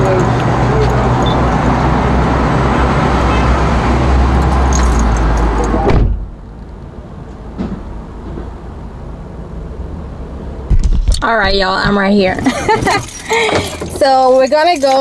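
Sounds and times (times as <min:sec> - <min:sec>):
car door slamming: 0:05.7 - 0:06.3.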